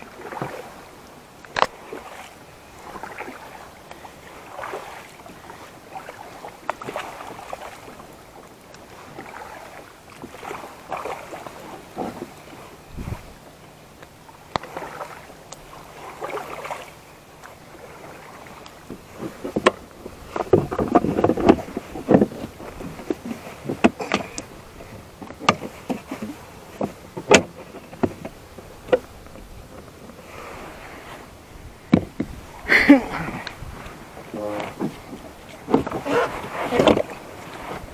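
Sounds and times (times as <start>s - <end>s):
hard plastic knocks and clatter: 20.4s - 24.5s, 25.2s - 29.9s, 31.9s - 32.4s.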